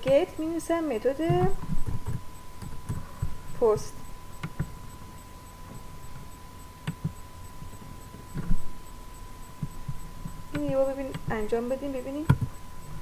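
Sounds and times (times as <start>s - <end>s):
thin electrical whine: 0.0s - 13.0s
computer mouse clicks: 4.4s - 4.7s.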